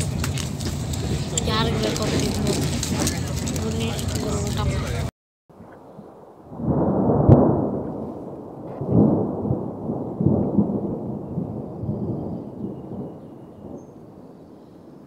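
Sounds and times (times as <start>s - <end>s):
train rumbling: 0.0s - 5.1s.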